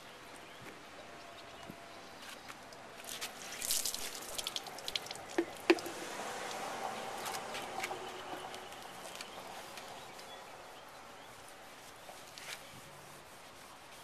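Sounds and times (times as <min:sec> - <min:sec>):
water splashing on plastic: 0:02.7 - 0:09.9.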